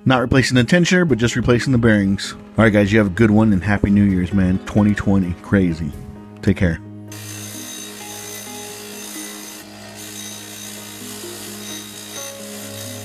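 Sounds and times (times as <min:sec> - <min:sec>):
grinder motor hum: 0:07.1 - 0:13.0
wire wheel rasping on metal: 0:07.1 - 0:13.0.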